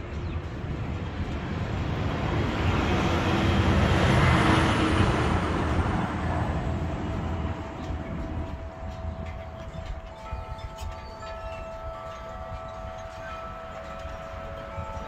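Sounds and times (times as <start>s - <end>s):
vehicle passing by: 1.6s - 7.7s.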